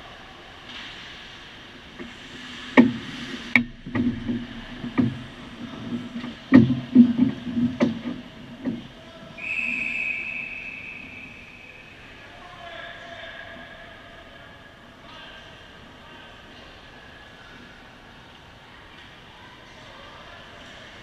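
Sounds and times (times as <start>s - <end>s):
hockey sticks and puck knocking: 2.8s - 8.9s
referee's whistle: 9.4s - 12.1s.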